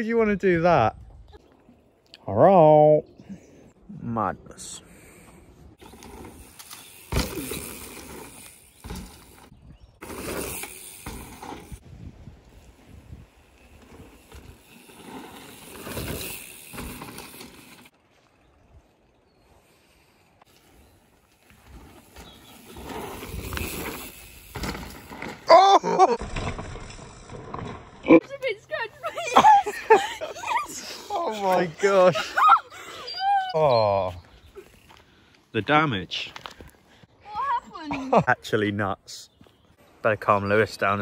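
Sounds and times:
tyres rolling and skidding on dirt: 5.8s - 18.4s, 20.4s - 32.2s
bike landing heavy thud: 7.0s - 8.1s.

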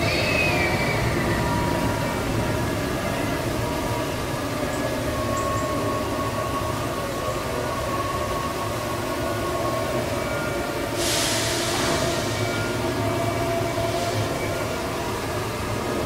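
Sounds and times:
faint steady tones: 0.0s - 16.0s
roller coaster rumbling on track: 0.0s - 16.0s
sudden hiss: 11.0s - 12.5s.

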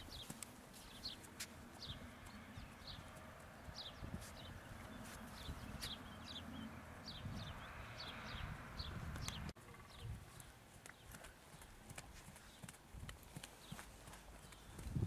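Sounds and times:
hooves thudding on sand: 0.0s - 6.2s, 10.2s - 15.0s.

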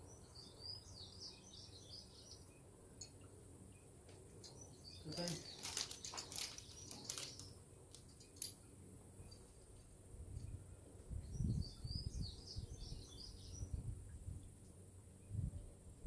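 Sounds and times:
small birds chirping: 0.0s - 9.8s, 10.4s - 13.8s
wind rumbling on microphone: 10.0s - 16.0s.

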